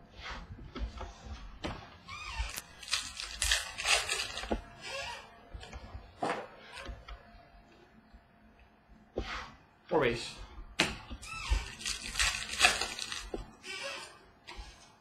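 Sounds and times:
wrapper tearing and crinkling: 2.5 - 4.5, 11.6 - 13.4.

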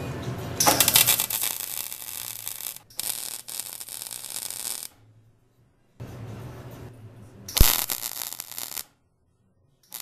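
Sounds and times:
welding arc crackling: 0.6 - 5.0, 7.5 - 8.9.

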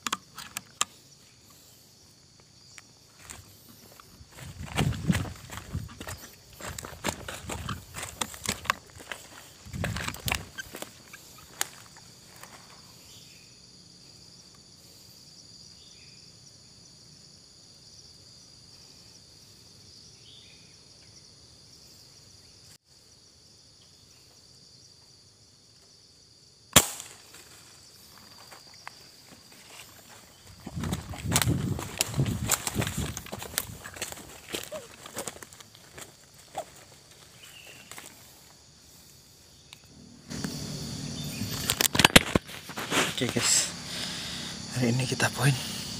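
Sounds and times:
high insect buzz: 0.0 - 45.9
rustling and movement: 2.8 - 12.8, 27.3 - 38.6, 40.3 - 43.8
air rifle shot: 26.8 - 27.2.

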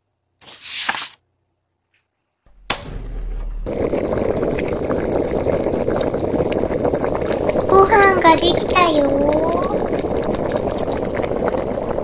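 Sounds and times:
low thud: 2.5 - 5.1
pot bubbling simmer: 2.5 - 12.0.

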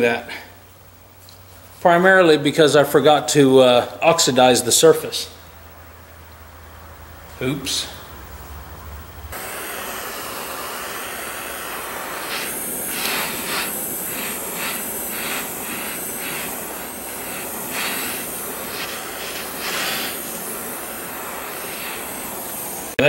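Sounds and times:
propane torch hissing: 9.3 - 23.0.

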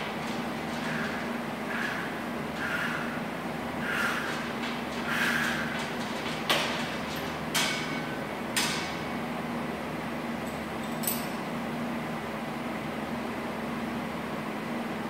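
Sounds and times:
cable machine metal clanks: 0.0 - 3.0, 4.0 - 9.0.

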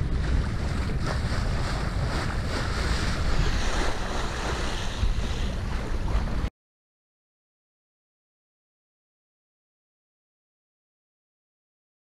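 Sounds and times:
sea water washing around boat: 0.0 - 6.5
wind buffeting microphone: 0.0 - 6.5.

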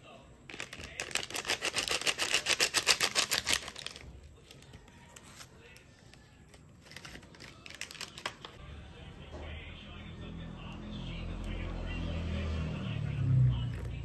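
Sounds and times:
plastic sachet crinkly rattle: 0.5 - 5.8, 6.5 - 8.6.

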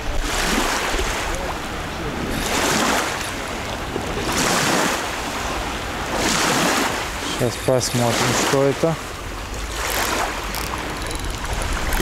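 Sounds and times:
wind buffeting microphone: 0.0 - 7.4, 9.0 - 12.0
water noise in swells: 0.0 - 12.0.

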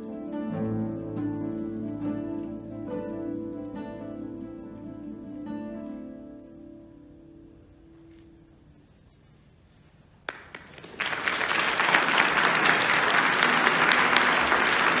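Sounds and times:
single clap: 10.2 - 15.0
audience applause: 10.3 - 15.0.

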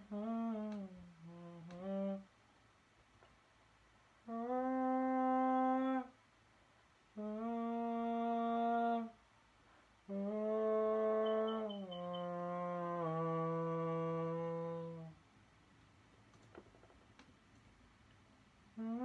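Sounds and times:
person humming long notes: 0.0 - 2.3, 4.3 - 6.2, 7.2 - 9.2, 10.1 - 15.2, 18.8 - 19.0.

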